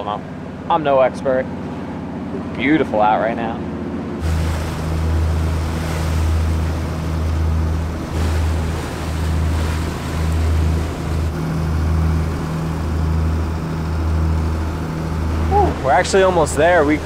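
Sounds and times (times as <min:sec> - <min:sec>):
boat diesel engines droning: 0:00.0 - 0:17.0
water rushing along hull: 0:00.0 - 0:17.0.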